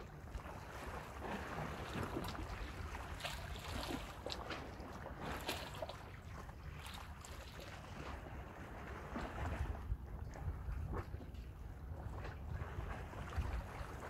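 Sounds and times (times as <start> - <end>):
sea water: 0.0 - 14.0
wind buffeting microphone: 9.2 - 14.0.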